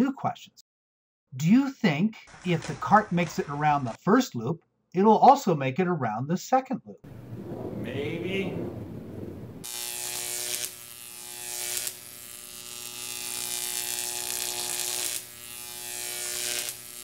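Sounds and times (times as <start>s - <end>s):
steady buzzing drone: 9.6s - 17.0s.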